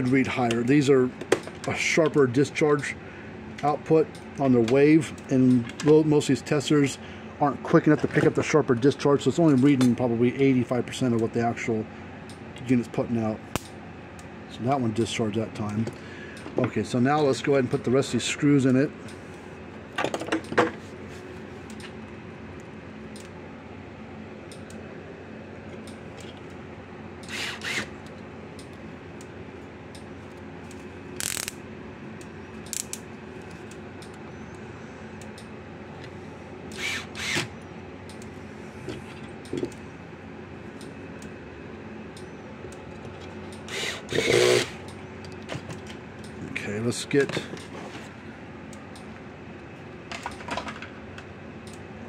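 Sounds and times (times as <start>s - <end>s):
steady background hum: 0.0s - 52.0s
screwdriver mechanical clicking: 27.2s - 28.7s, 31.2s - 31.6s, 32.6s - 33.0s, 36.7s - 37.5s, 43.5s - 45.4s.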